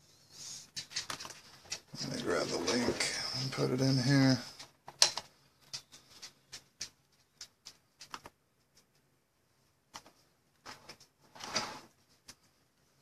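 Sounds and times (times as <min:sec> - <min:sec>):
typing clicks and taps: 0:04.6 - 0:09.1
scrape: 0:10.7 - 0:12.0.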